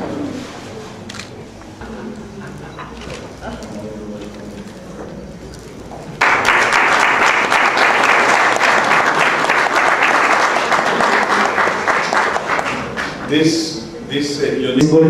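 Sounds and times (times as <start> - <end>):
audience applauding: 1.8 - 13.3.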